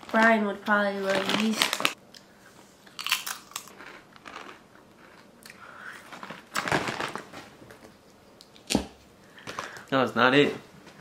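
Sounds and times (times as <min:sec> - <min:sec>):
potato chips being crunched: 0:01.1 - 0:02.0, 0:03.0 - 0:05.2.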